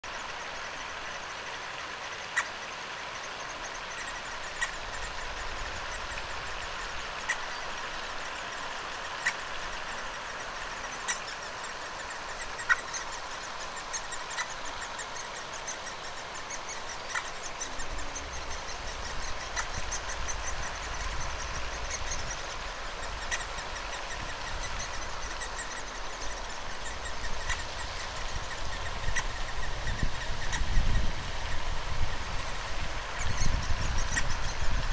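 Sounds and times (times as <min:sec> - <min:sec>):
nestlings begging with high chirps: 0:08.9 - 0:34.9.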